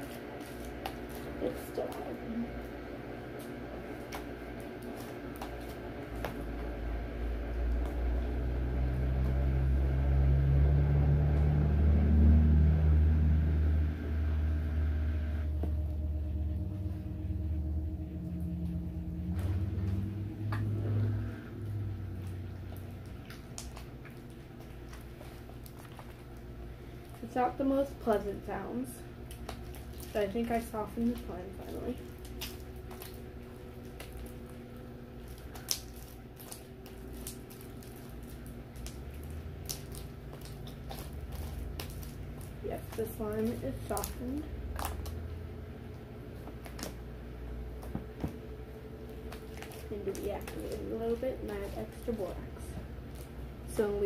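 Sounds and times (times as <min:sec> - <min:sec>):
slime squishing by hand: 0:00.0 - 0:02.4, 0:19.4 - 0:54.0
steady low hum: 0:00.0 - 0:54.0.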